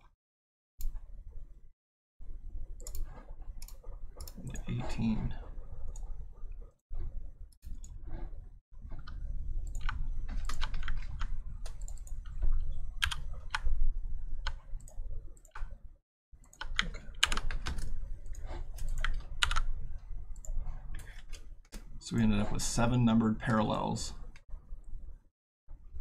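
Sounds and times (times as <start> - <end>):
low steady hum: 0.8 - 26.0
typing on computer keyboard: 9.7 - 13.7, 16.4 - 19.7.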